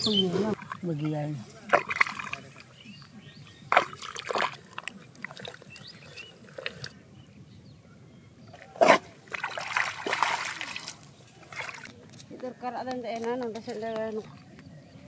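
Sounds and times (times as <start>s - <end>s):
hands splashing in muddy water: 0.5s - 2.9s, 3.7s - 6.9s, 9.2s - 12.0s.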